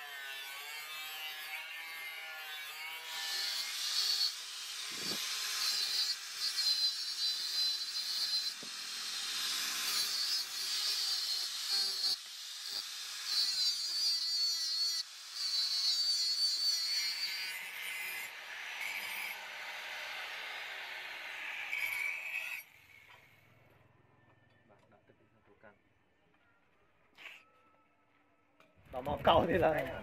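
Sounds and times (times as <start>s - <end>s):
angle grinder grinding metal: 0.0s - 23.4s.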